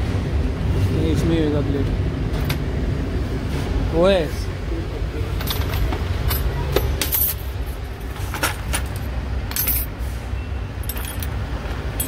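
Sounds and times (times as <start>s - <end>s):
metal tools clinking in a tray: 5.4s - 9.9s, 10.8s - 11.3s.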